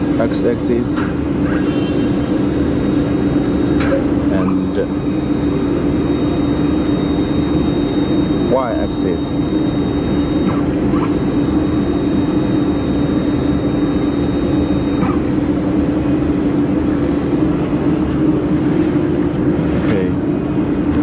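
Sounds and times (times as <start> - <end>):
faint high whine: 0.0 - 21.0
low humming tone: 0.0 - 21.0
welding machine whirring drone: 0.0 - 21.0.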